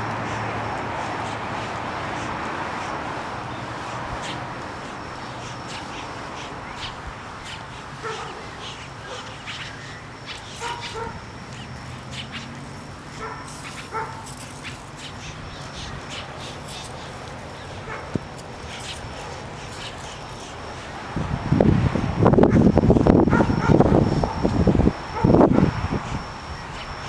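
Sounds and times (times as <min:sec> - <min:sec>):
high-pitched ticks or chirps: 0:03.5 - 0:21.0
dog barking: 0:08.0 - 0:08.4, 0:09.0 - 0:09.4, 0:10.6 - 0:11.2, 0:13.2 - 0:14.2, 0:23.3 - 0:23.8.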